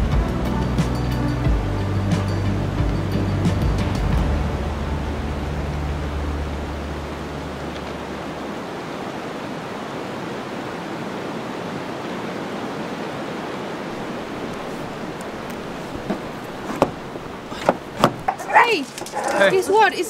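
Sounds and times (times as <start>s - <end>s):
wind through pine trees: 4.4s - 20.0s.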